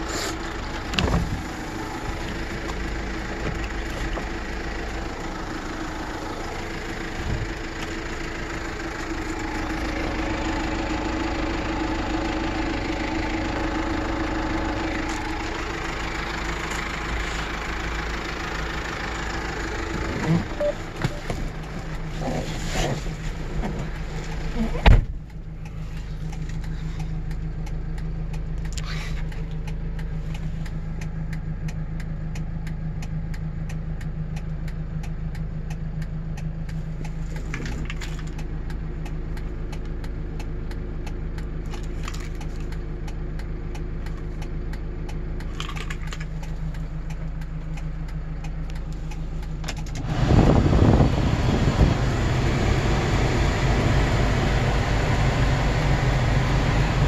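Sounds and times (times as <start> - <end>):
diesel engine idling: 0.0 - 57.0
thump: 24.8 - 25.2.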